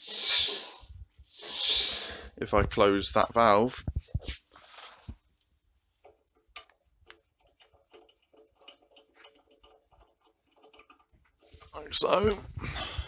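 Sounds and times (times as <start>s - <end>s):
faint clicks and taps: 5.1s - 12.4s.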